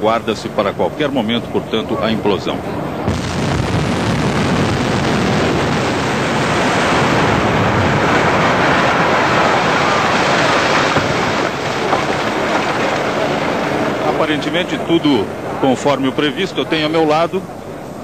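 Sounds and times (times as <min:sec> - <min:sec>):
rumble of falling concrete: 0:03.1 - 0:15.1.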